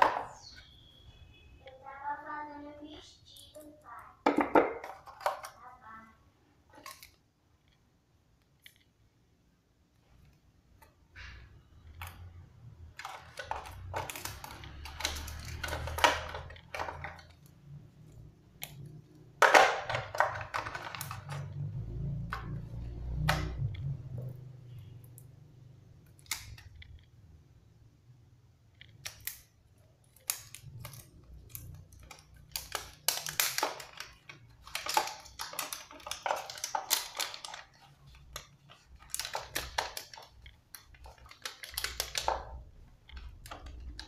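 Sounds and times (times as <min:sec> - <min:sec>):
plastic film crinkling: 0:11.2 - 0:23.0, 0:28.8 - 0:44.0.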